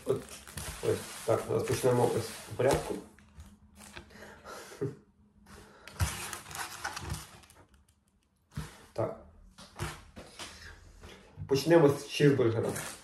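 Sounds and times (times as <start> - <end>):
paper wrappers rustling: 0.0 - 4.2, 5.9 - 8.1.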